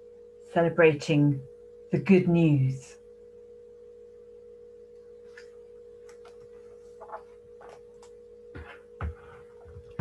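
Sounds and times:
electrical hum: 0.0s - 10.0s
book rustling and tapping: 5.3s - 10.0s.

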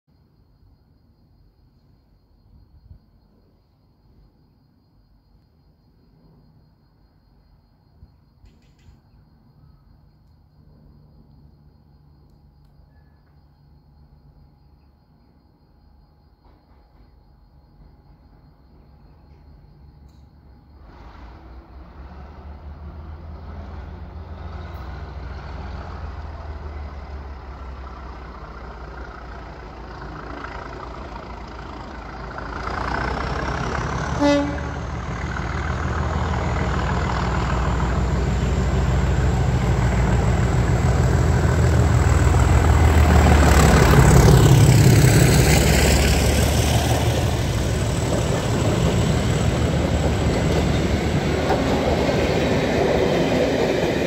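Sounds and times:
diesel locomotive engine: 16.4s - 54.0s
coaches rolling by: 23.5s - 54.0s
train horn toot: 34.0s - 35.1s.

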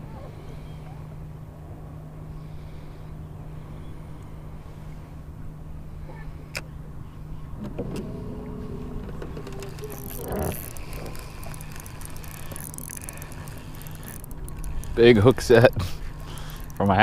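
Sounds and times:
electric motor hum: 7.6s - 17.0s
high motor whine: 7.6s - 17.0s.

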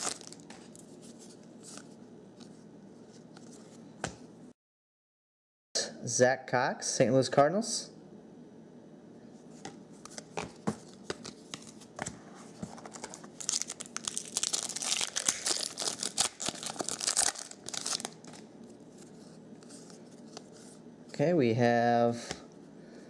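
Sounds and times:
foil wrapper tearing and crinkling: 0.0s - 0.4s, 12.8s - 18.4s.

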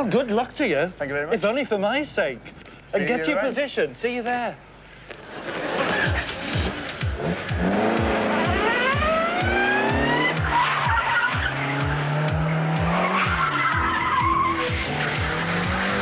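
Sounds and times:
car engine revving: 5.2s - 16.0s
background music with steady beat: 5.8s - 16.0s
tyres squealing: 9.4s - 16.0s.

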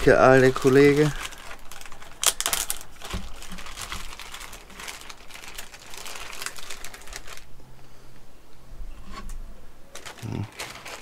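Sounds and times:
dense crackling rustle: 0.0s - 8.2s, 9.0s - 11.0s.

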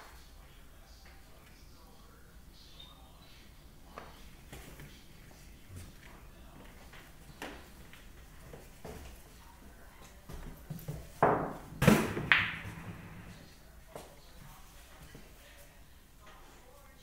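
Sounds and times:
knocks on pool table: 11.2s - 13.3s.

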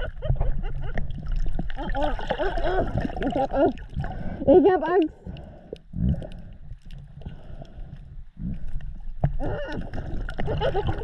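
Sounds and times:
bubbling water: 0.0s - 11.0s
muffled underwater rumble: 0.0s - 11.0s
underwater clicks: 4.8s - 10.8s.

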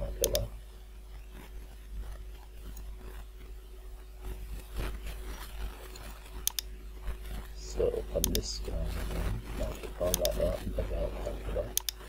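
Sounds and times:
low electrical hum: 0.0s - 12.0s
computer mouse rustling on desk: 4.2s - 6.4s
mouse click: 6.5s - 6.7s.

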